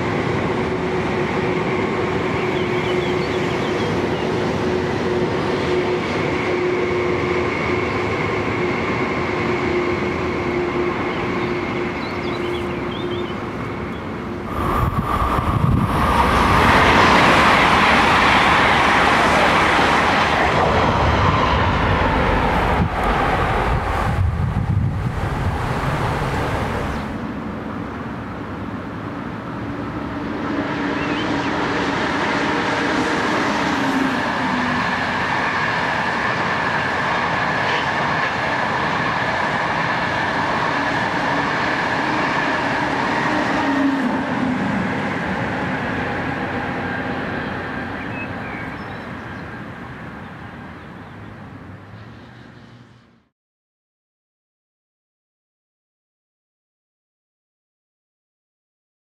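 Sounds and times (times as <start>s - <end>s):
train rushing past: 0.0s - 53.3s
high whine: 13.6s - 18.8s.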